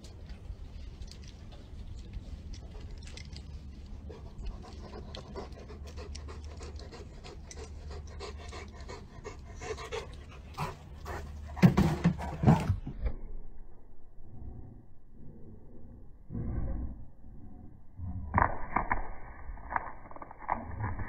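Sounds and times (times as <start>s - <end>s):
dog panting: 3.9s - 11.8s.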